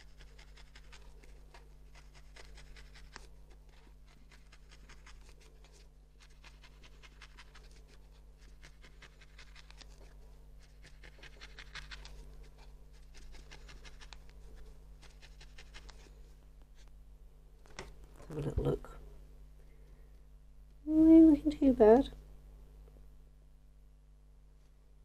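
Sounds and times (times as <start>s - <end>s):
felting needle poking wool: 0.0s - 16.9s.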